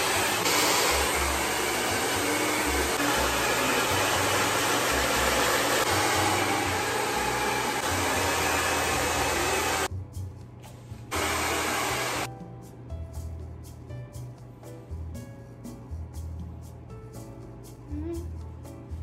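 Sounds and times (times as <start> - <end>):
hair dryer blowing: 0.0 - 9.9, 11.1 - 12.3.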